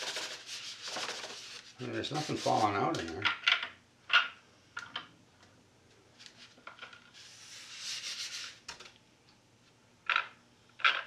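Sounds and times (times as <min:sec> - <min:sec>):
rubbing scrape on foam: 0:00.0 - 0:02.8.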